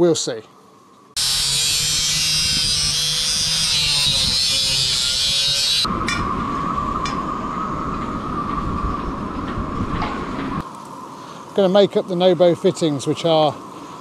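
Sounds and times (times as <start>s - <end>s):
angle grinder cutting metal tube: 1.2s - 5.9s.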